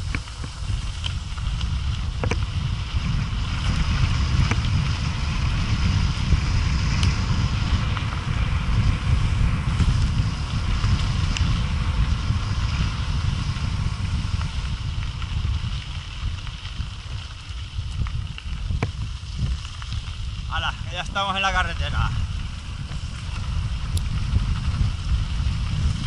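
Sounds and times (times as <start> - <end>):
stones ticking: 0.0 - 2.8, 13.6 - 26.0
bike tyres crunching on gravel: 0.0 - 26.0
wind buffeting microphone: 0.0 - 26.0.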